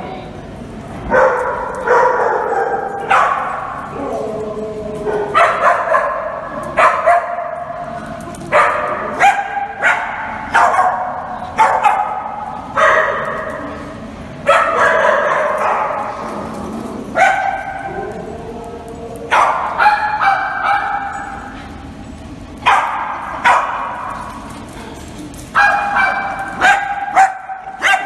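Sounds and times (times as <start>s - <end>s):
small dogs barking: 1.1s - 4.3s, 5.0s - 7.8s, 8.5s - 13.6s, 14.4s - 21.6s, 22.6s - 24.4s, 25.5s - 28.0s.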